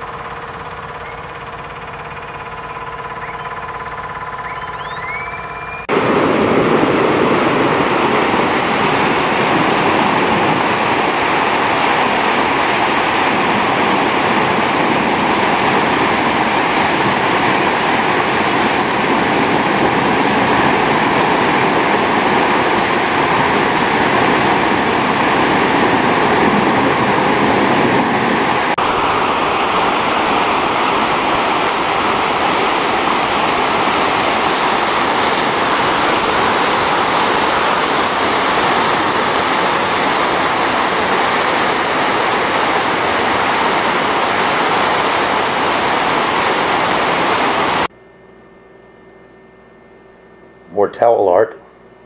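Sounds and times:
waterfall splashing into pool: 4.9 - 47.9.

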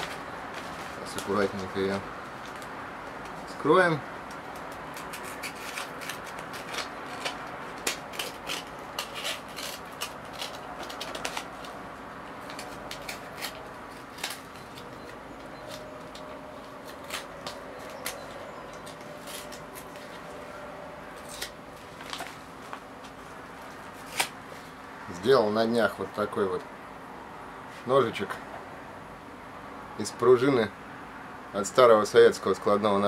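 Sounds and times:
paper crackling and rustling: 0.0 - 3.6, 4.2 - 24.8
paper mailer being slit open: 4.4 - 11.8, 24.0 - 24.4.

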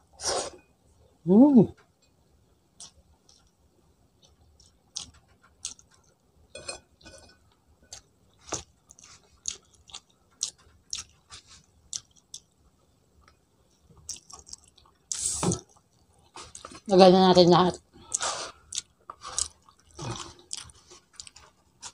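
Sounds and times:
person chewing food: 2.8 - 3.6, 4.2 - 16.8, 18.0 - 21.9.

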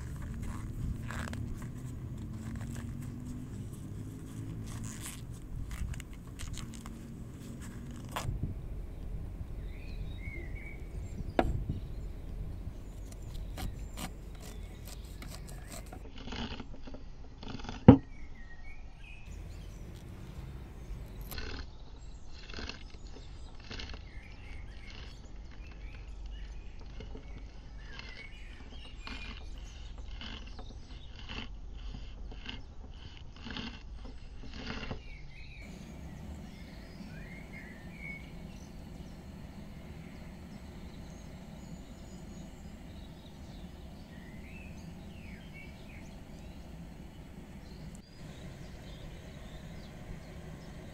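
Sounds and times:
faint birds chirping: 0.0 - 16.1, 18.0 - 50.9
knife cutting corn kernels: 12.9 - 16.8, 22.4 - 24.1, 26.9 - 41.3.

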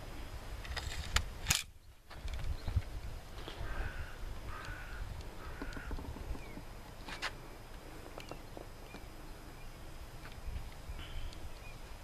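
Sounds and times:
crow cawing: 3.6 - 6.1.

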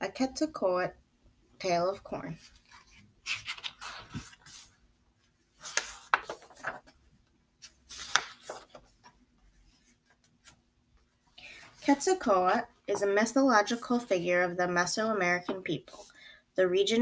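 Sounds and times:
paper pages rustling: 2.4 - 4.8, 5.6 - 10.6.

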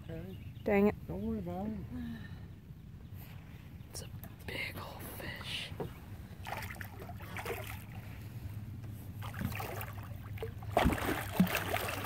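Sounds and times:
steady low hum: 0.0 - 12.0
fish thrashing water splashing: 9.2 - 12.0.

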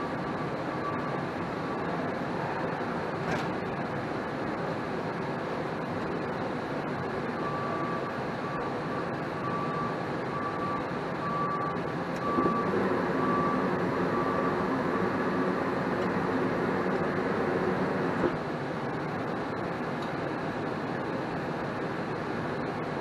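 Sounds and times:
soft electronic beep: 7.4 - 14.7.

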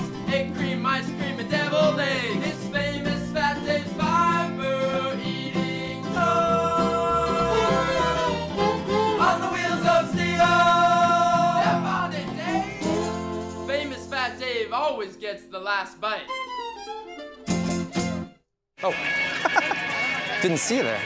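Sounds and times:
person singing long notes: 4.8 - 13.3.

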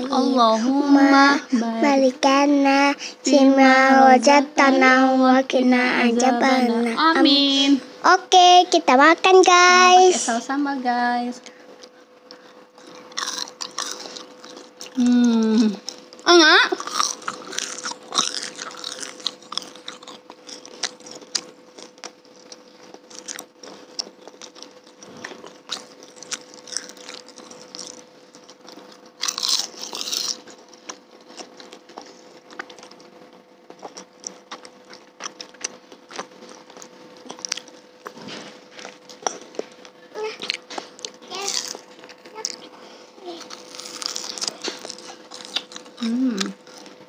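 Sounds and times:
faint steady hum: 0.0 - 47.0
chewing crunchy food: 11.8 - 47.0.

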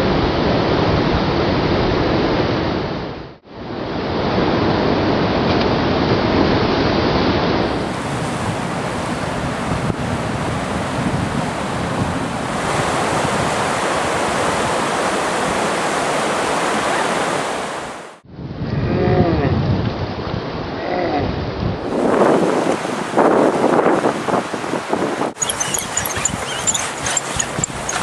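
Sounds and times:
wind buffeting microphone: 7.6 - 15.8, 18.3 - 28.0.

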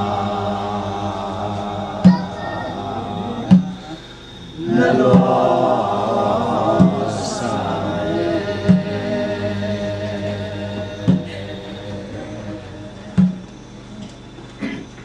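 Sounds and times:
group singing a slow chant: 0.0 - 14.4
sharp beat: 1.6 - 4.0.

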